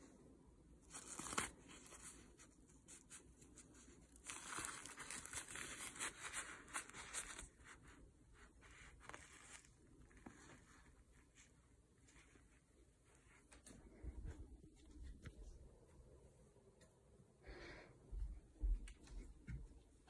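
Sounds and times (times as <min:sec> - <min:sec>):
cloth and paper tissue rustling: 0:00.8 - 0:16.4.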